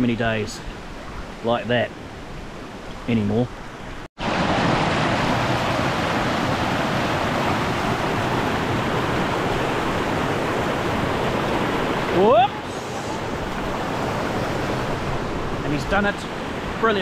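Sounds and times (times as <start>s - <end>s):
water rushing over rock: 4.2s - 17.0s.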